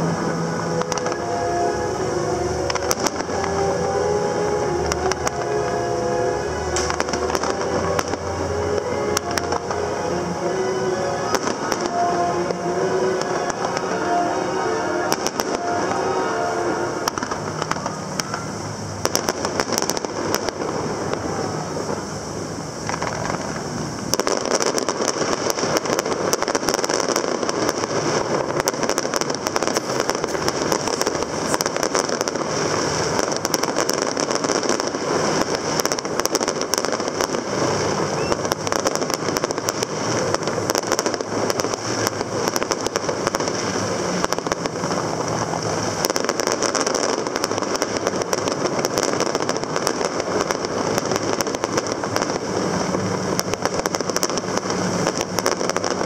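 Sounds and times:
low engine hum: 0:00.0 - 0:24.2
fireworks crackling and banging: 0:00.0 - 0:56.0.

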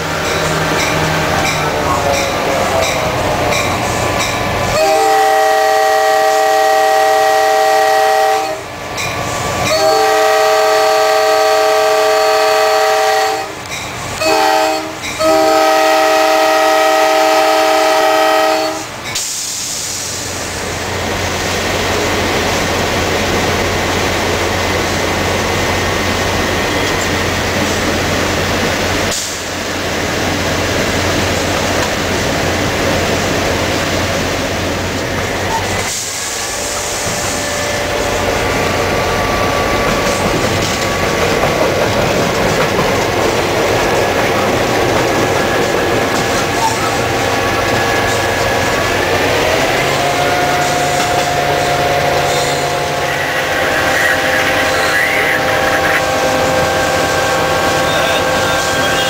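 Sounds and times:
locomotive engine and wheels running: 0:00.0 - 0:05.1, 0:18.9 - 0:59.0
chime air horn on locomotive: 0:04.7 - 0:08.7, 0:09.6 - 0:13.6, 0:14.2 - 0:18.9, 0:49.8 - 0:59.0.

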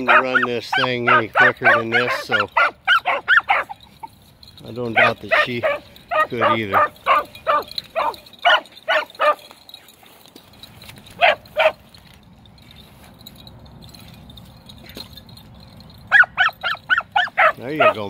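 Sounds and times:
dogs barking: 0:00.0 - 0:09.8, 0:11.1 - 0:12.0, 0:15.8 - 0:18.0.

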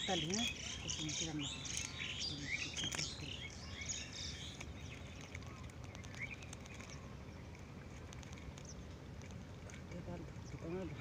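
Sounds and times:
bird chirps: 0:00.0 - 0:07.2
low steady rumble: 0:00.0 - 0:11.0.

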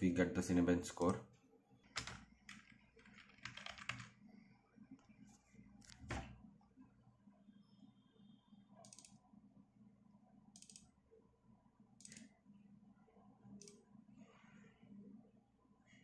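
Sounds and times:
computer mouse clicks: 0:08.8 - 0:09.2, 0:10.5 - 0:10.9, 0:12.0 - 0:12.4, 0:13.6 - 0:13.8.

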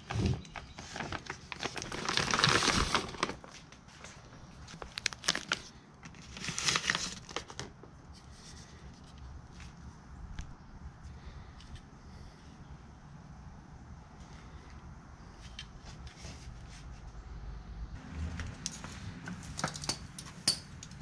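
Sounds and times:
plastic bag crinkling: 0:00.2 - 0:07.7.

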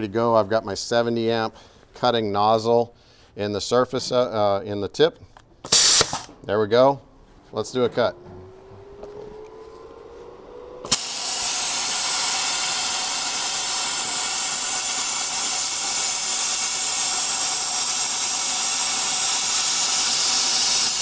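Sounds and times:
plasma torch hissing: 0:05.7 - 0:06.3, 0:10.8 - 0:21.0
plasma torch arc snap: 0:05.7 - 0:06.4, 0:10.8 - 0:21.0.

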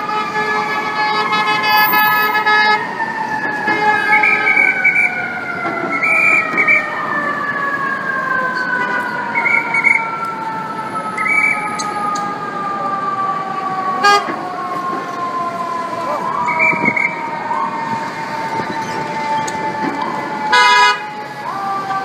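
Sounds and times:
city traffic: 0:00.0 - 0:22.0
emergency vehicle siren: 0:00.0 - 0:22.0
car horn blasts: 0:20.5 - 0:21.0.

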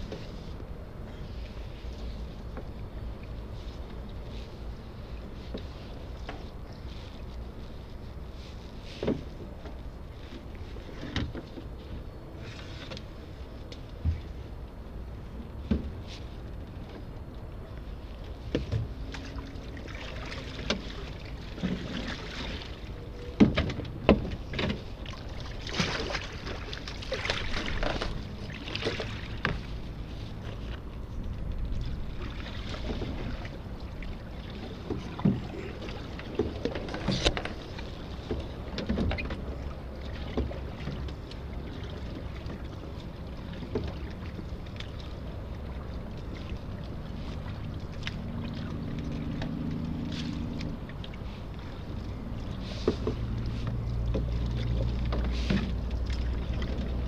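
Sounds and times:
knocks and clatter on boat: 0:00.0 - 0:57.0
water and wind rushing: 0:00.0 - 0:57.0.

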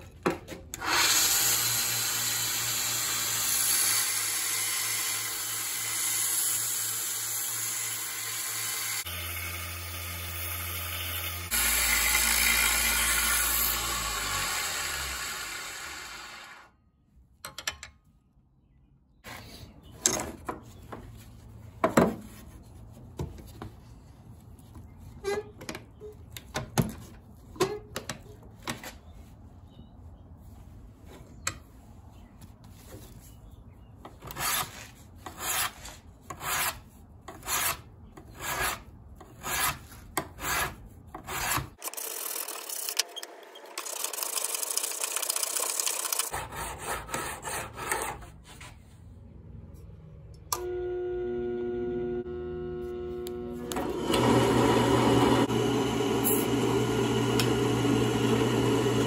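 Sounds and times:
belt grinder grinding metal: 0:00.8 - 0:16.7, 0:41.4 - 0:46.3, 0:53.6 - 0:59.0.

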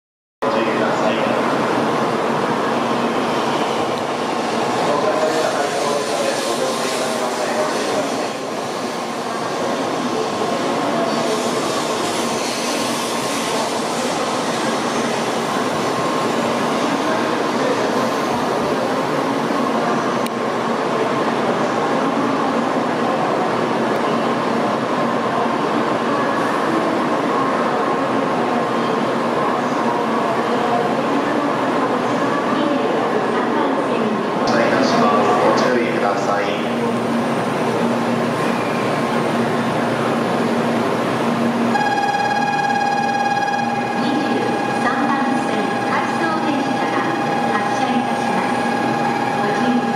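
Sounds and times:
train arriving rush and hum: 0:00.4 - 0:49.9
faint high tone: 0:41.7 - 0:49.9.

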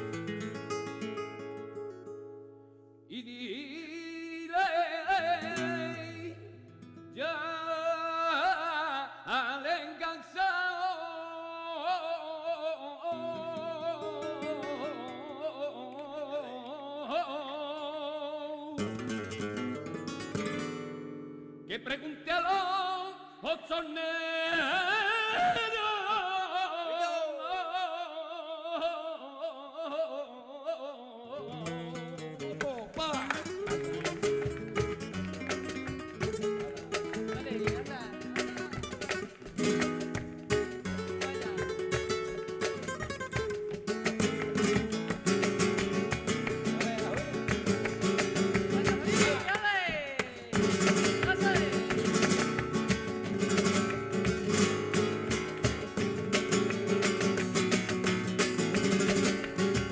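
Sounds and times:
acoustic guitar accompaniment: 0:00.0 - 0:27.8, 0:31.3 - 0:59.9
person singing ornamented phrases: 0:03.1 - 0:06.5, 0:07.2 - 0:18.8, 0:21.7 - 0:34.0, 0:41.0 - 0:42.0, 0:48.7 - 0:51.9.

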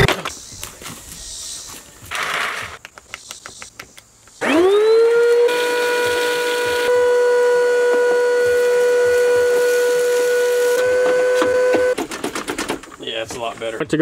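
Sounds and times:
vacuum cleaner whining: 0:04.4 - 0:12.0
vacuum sucking broken glass: 0:05.2 - 0:12.0.

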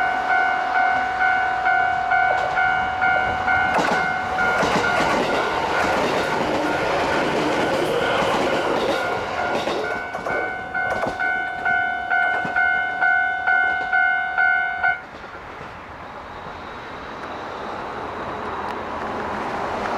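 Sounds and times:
level-crossing warning bell: 0:00.0 - 0:15.1
electric train running: 0:02.1 - 0:12.6.

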